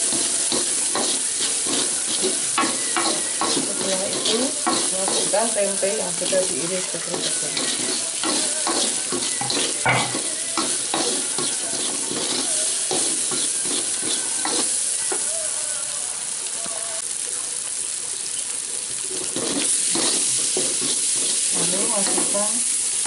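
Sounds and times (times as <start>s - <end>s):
wooden spatula scraping a pan: 0.0s - 14.8s, 19.1s - 22.4s
food sizzling in hot oil: 0.0s - 23.0s.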